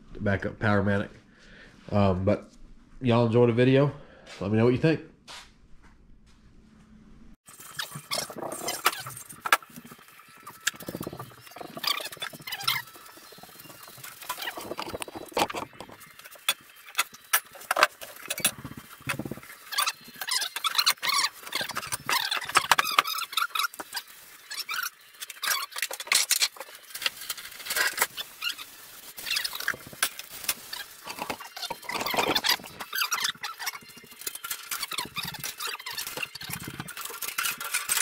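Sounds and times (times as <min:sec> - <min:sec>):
squeaky rubbing: 0:10.7 - 0:30.0, 0:30.6 - 0:38.0.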